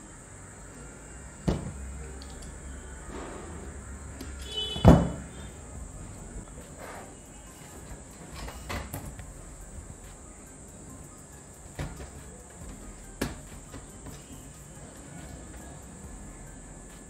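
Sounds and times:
faint high-pitched tone: 0.0s - 17.0s.

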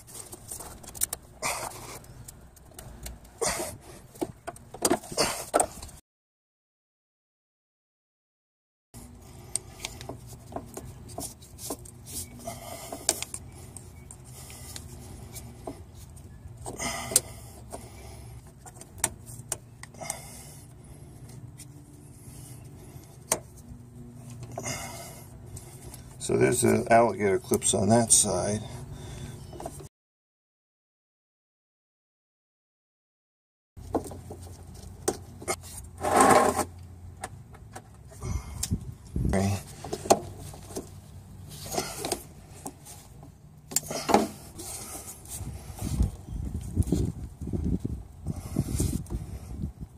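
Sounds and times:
pick tool scraping: 35.4s - 36.8s.

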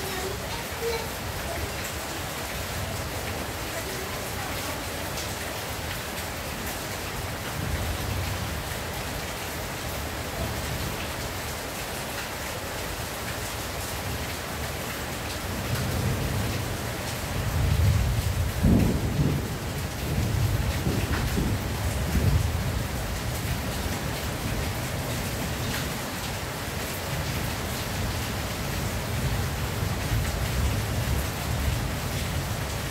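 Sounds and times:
rain on a tin roof: 0.0s - 32.9s
thunder rumbling: 17.5s - 23.0s.

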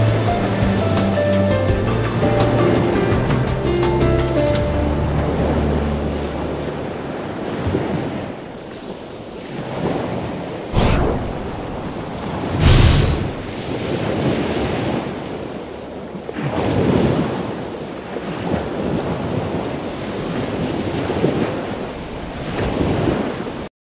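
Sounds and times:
rushing surf-like noise: 10.8s - 13.8s.

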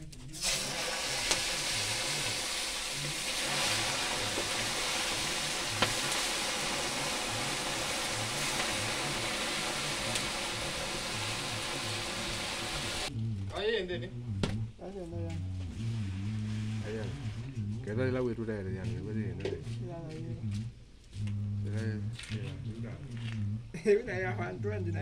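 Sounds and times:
fish sizzling in hot oil: 0.4s - 13.1s
oil popping: 0.4s - 13.1s.

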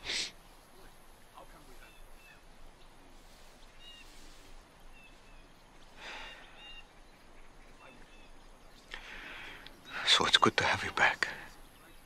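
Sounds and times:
soft rustle: 0.0s - 6.0s
birds chirping: 0.0s - 12.0s.

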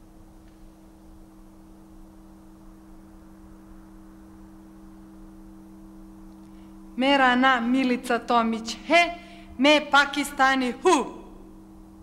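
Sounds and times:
faint hiss: 0.0s - 7.2s
low electrical hum: 0.0s - 12.0s.

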